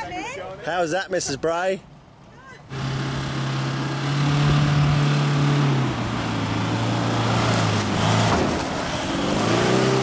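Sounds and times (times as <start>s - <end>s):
truck engine driving through mud: 2.7s - 10.0s.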